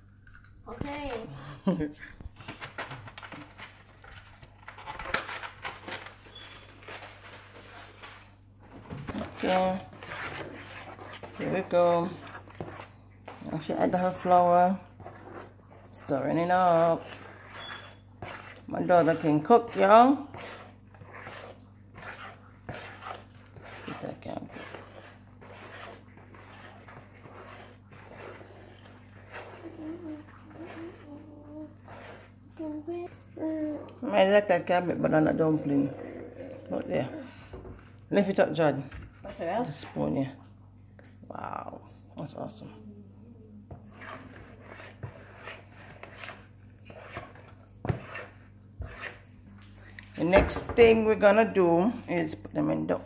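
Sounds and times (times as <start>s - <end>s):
spoon stirring dough in bowl: 2.4s - 42.5s, 43.6s - 53.0s.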